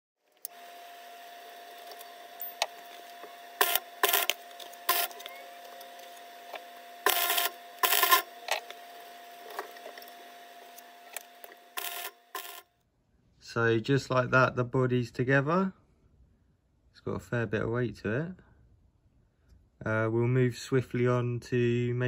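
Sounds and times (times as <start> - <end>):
welder steady hum: 0.2 - 12.7
welder crackling bursts: 1.4 - 12.6.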